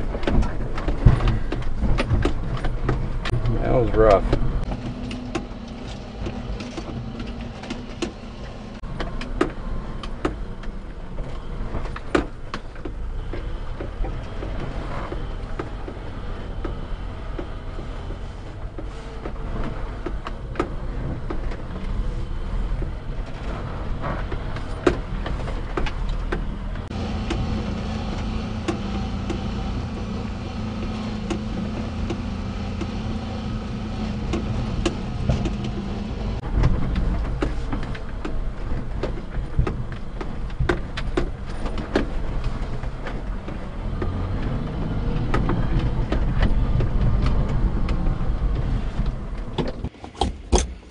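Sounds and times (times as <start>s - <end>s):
engine running rough: 0.0s - 49.9s
truck knocking over bumps: 0.0s - 50.8s.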